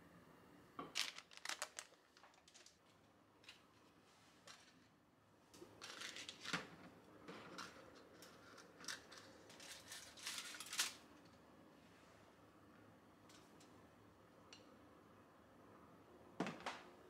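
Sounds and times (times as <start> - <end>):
leaf rustling and handling: 1.0 - 4.8, 8.2 - 11.0.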